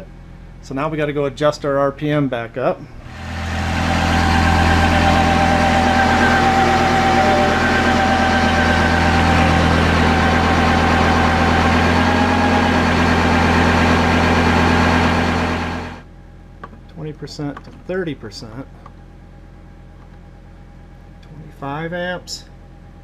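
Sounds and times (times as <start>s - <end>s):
diesel tractor engine running: 3.0s - 17.0s.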